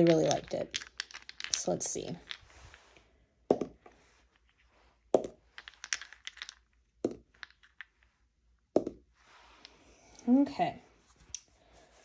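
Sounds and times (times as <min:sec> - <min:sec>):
dice clicking as they settle: 0:00.0 - 0:02.6, 0:05.2 - 0:08.0
dice knocking on a table: 0:03.5 - 0:03.9, 0:05.1 - 0:07.8, 0:08.7 - 0:09.1.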